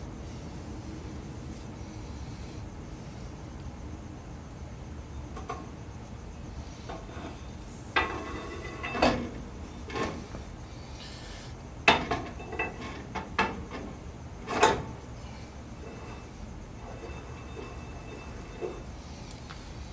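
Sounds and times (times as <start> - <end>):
metal clunks and clinks: 8.0 - 10.2, 11.9 - 14.9.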